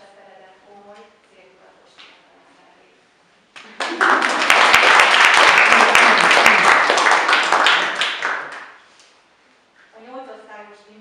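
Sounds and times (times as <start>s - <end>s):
crowd applauding: 3.6s - 8.8s.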